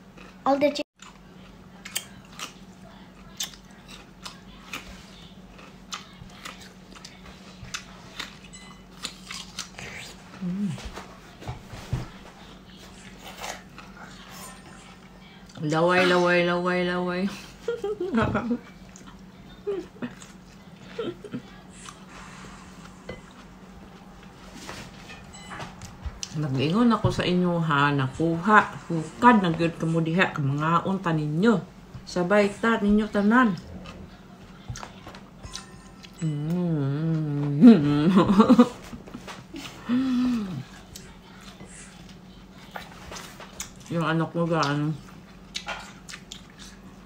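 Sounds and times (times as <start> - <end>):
steady low hum: 0.0 - 47.0
cucumber crunching: 1.8 - 10.7.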